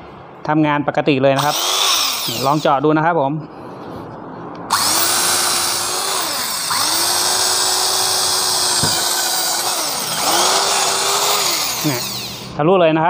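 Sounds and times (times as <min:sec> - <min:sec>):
electric drill motor whining: 0:01.4 - 0:02.7, 0:04.7 - 0:12.6.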